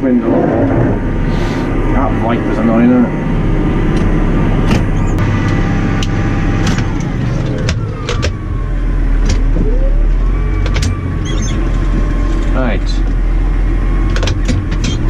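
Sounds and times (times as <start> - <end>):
tractor diesel engine running: 0.0 - 15.0
sharp clicks and rattles: 14.0 - 15.0.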